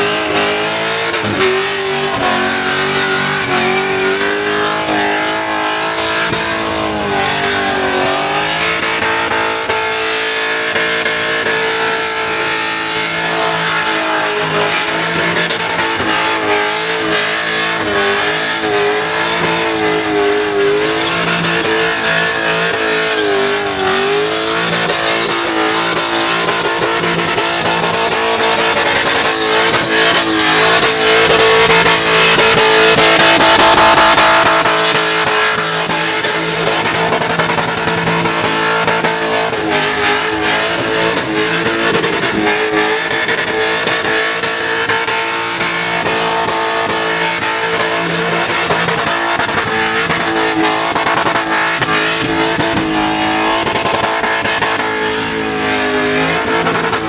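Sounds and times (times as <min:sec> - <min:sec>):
car engine at high revs: 0:00.0 - 0:57.0
spinning tyres screeching: 0:00.0 - 0:57.0.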